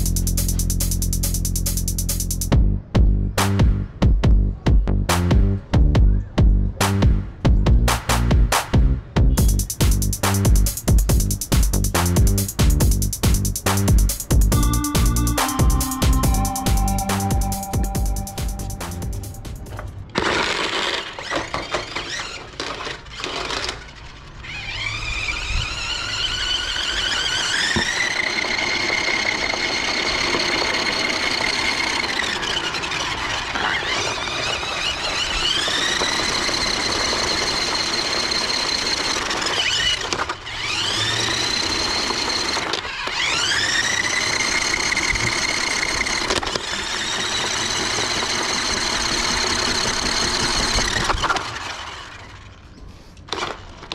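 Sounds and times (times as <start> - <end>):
electric motor whining: 24.4 - 52.3.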